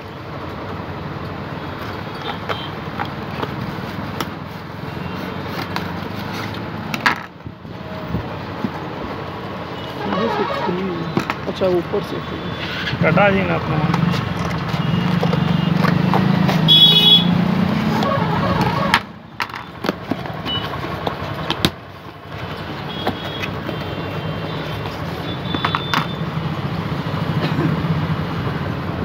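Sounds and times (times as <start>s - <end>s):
cardboard clicks and taps: 5.4s - 6.0s, 18.6s - 21.8s, 25.4s - 26.2s.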